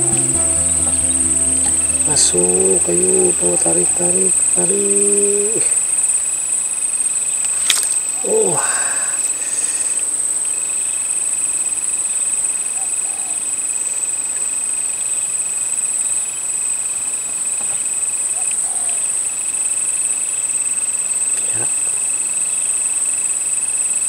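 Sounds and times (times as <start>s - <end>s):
lower thin insect tone: 0.0s - 5.7s.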